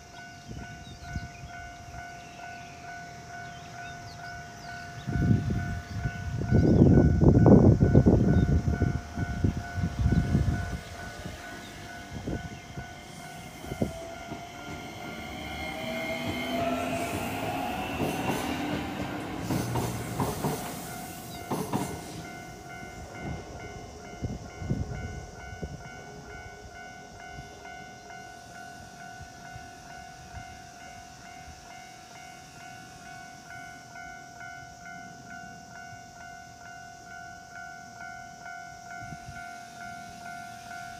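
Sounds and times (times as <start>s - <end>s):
level crossing warning bell: 0.0s - 40.9s
electric train motor whine: 5.1s - 36.0s
train wheels knocking on rail joints: 8.3s - 24.9s.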